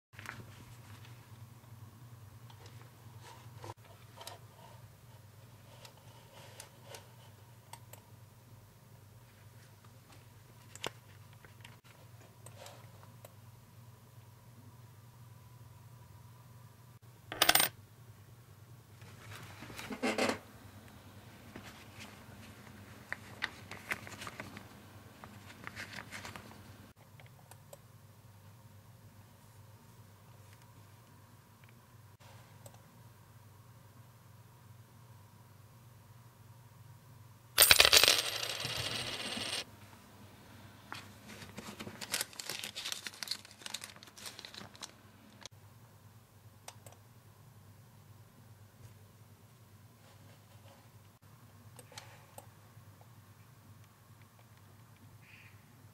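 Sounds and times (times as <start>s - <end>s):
rubber glove rustle: 41.2s - 45.5s.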